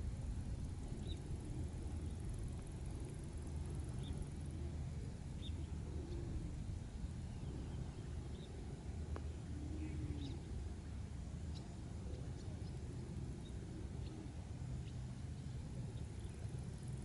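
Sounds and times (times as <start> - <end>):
steady low rumble: 0.0 - 17.0
faint bird chirps: 9.2 - 10.6.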